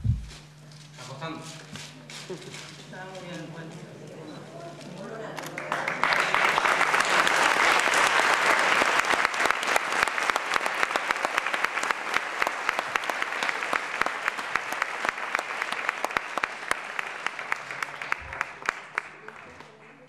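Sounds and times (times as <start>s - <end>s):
audience applauding: 5.3s - 20.0s.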